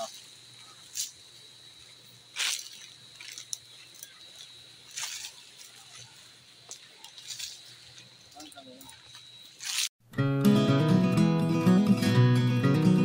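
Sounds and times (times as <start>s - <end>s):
granules scattering onto dry leaves: 2.3s - 9.9s.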